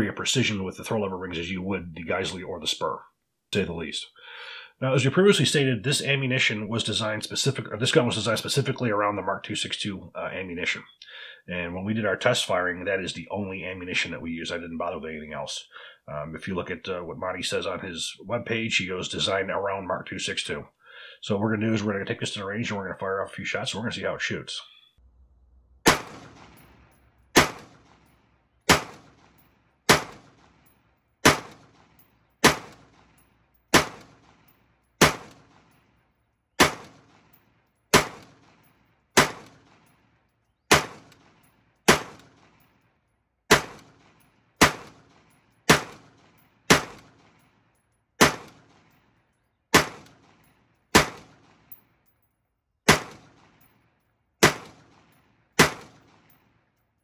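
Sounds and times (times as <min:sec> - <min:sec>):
rifle shots with echo: 0:25.8 - 0:35.8, 0:36.6 - 0:40.1, 0:40.7 - 0:42.7, 0:43.5 - 0:47.6, 0:48.2 - 0:49.0, 0:49.7 - 0:51.8, 0:52.9 - 0:53.8, 0:54.4 - 0:56.6.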